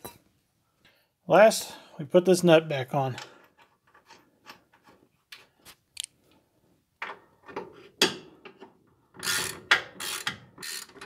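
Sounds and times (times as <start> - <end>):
ratchet wrench clicking: 9.2 - 11.0.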